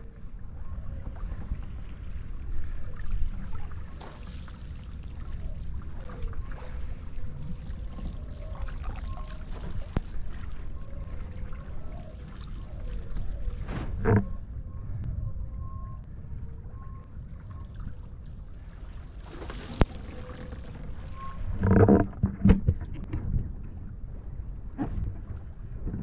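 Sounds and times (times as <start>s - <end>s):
water trickling and splashing: 0.0s - 14.4s, 17.2s - 23.1s
wind rumbling on microphone: 0.0s - 26.0s.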